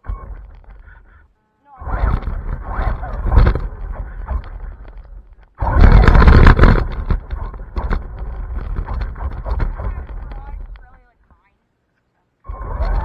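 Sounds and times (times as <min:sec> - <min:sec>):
rushing wind: 0:01.8 - 0:10.8
knocks and bumps on camera: 0:02.0 - 0:11.0.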